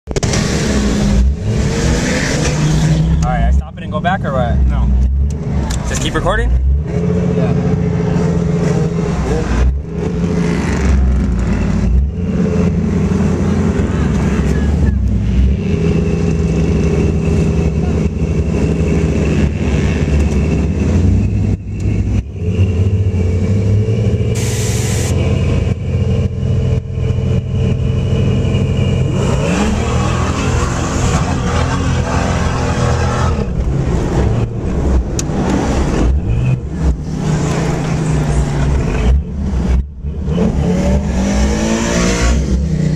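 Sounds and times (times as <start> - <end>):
car engine revving: 0.1 - 42.9
short hiss: 24.4 - 25.1.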